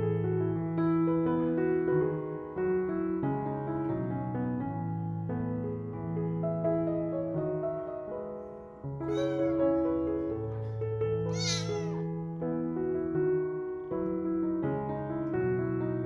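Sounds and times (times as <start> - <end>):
soft piano music: 0.0 - 16.0
kitten meowing: 9.1 - 9.7, 11.3 - 12.0.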